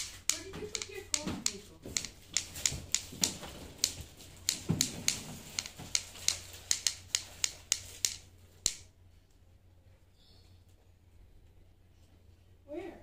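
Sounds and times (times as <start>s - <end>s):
sharp irregular clicks: 0.0s - 8.9s.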